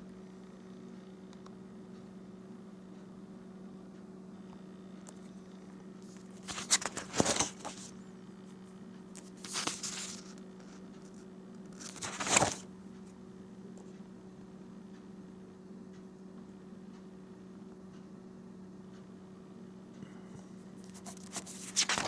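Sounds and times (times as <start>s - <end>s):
steady low hum: 0.0s - 22.0s
paper pages rustling: 6.0s - 7.9s, 9.2s - 12.6s, 20.8s - 22.0s.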